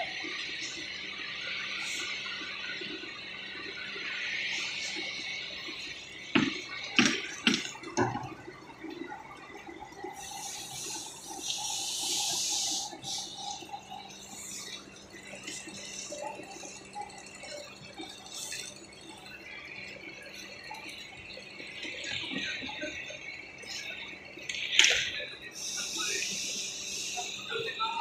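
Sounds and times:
steady high hiss: 10.2s - 14.8s, 24.5s - 28.0s.

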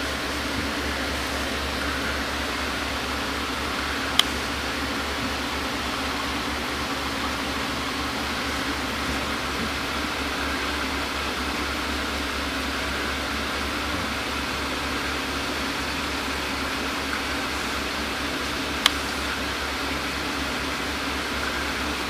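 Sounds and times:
aquarium equipment humming: 0.0s - 22.0s.

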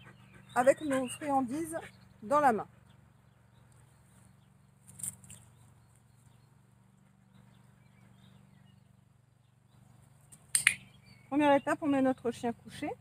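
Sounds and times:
soft sharp clicks: 10.3s - 10.8s.

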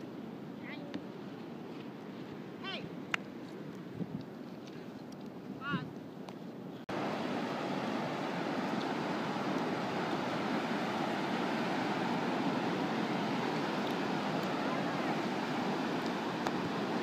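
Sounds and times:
ocean surf breaking: 6.9s - 17.0s.

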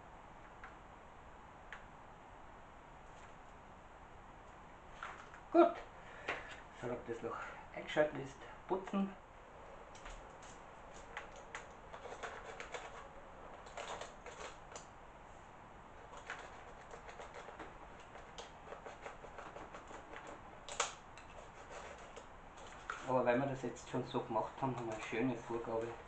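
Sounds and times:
needle tip scratching foam: 16.1s - 20.6s, 21.2s - 23.1s.

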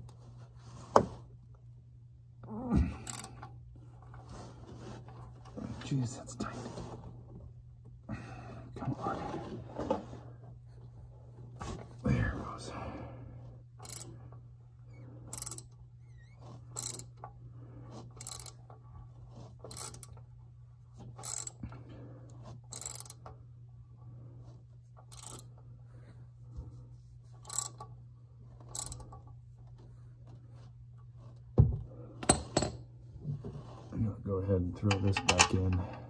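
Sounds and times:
socket ratchet clicking: 13.8s - 14.1s, 15.3s - 15.7s, 16.8s - 17.2s, 18.2s - 18.6s, 19.7s - 20.2s, 22.7s - 23.2s, 25.1s - 25.5s, 27.4s - 27.9s, 28.7s - 29.2s.

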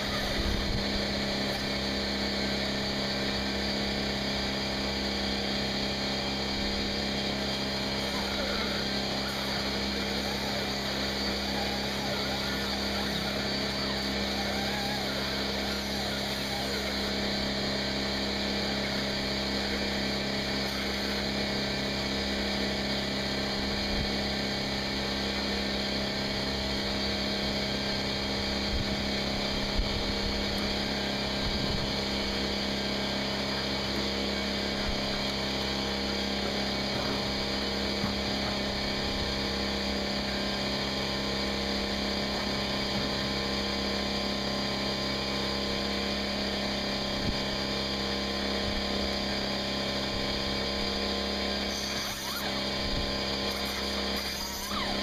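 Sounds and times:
motor running steadily: 0.0s - 55.0s.

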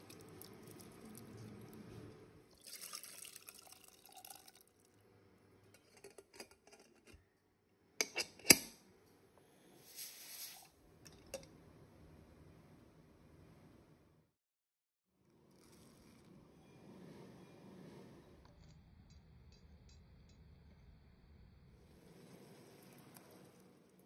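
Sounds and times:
liquid splashing into a pot: 0.0s - 1.7s, 2.6s - 4.7s.

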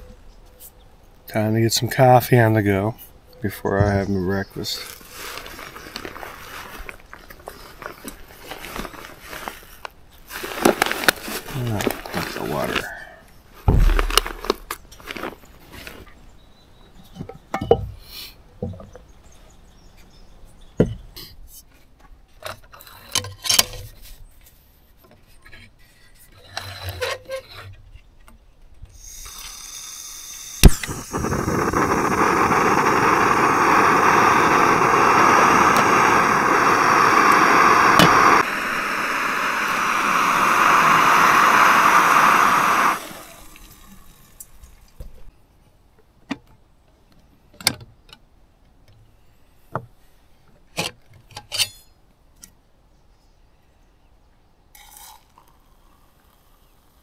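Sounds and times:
gas stove hissing: 29.0s - 43.7s
water pouring: 43.0s - 45.2s.

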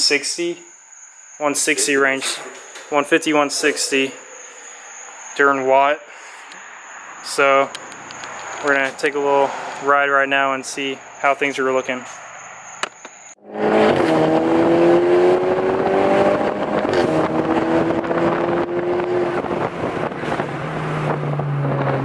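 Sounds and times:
car engine accelerating: 13.4s - 22.0s.

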